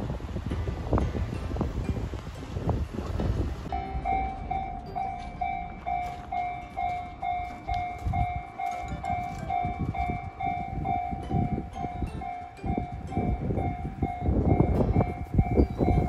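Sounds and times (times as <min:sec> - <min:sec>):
level crossing warning bell: 0:03.7 - 0:16.0.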